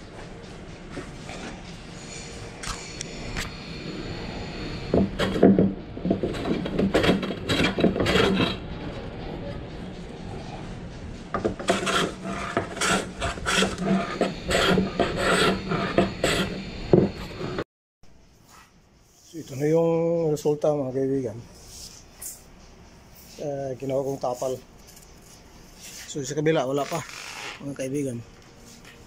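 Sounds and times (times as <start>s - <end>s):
hand plane shaving wood: 11.6s - 16.5s.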